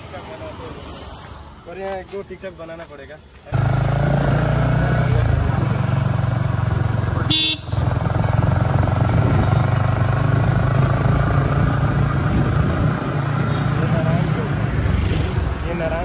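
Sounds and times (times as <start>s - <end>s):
motorcycle engine running: 3.6s - 15.6s
short high horn toot: 7.3s - 7.8s.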